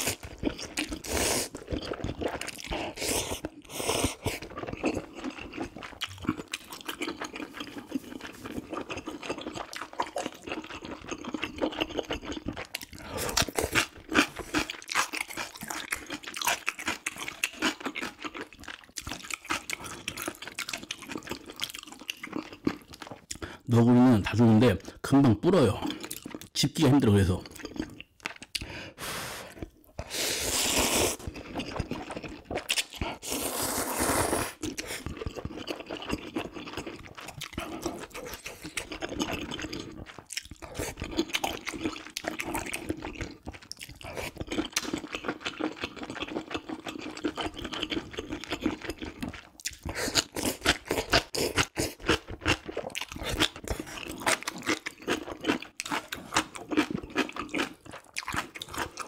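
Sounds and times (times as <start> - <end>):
slurping noodles: 0.0 - 6.5, 28.7 - 43.0
wet chewing: 0.0 - 23.7, 27.4 - 59.0.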